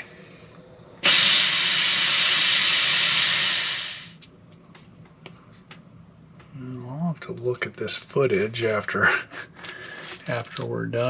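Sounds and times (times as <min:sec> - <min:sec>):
steamer hissing: 0:01.0 - 0:04.2.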